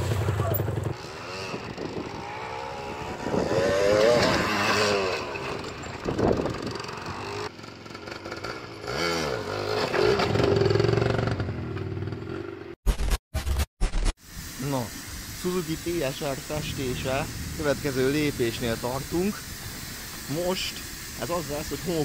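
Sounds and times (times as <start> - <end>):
two-stroke motorcycle engine revving: 0.0 - 12.8, 15.4 - 22.0.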